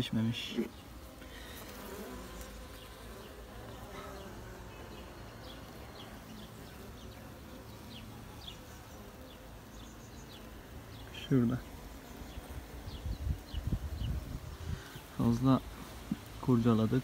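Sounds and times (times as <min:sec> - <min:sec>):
honey bees humming: 0:00.0 - 0:17.0.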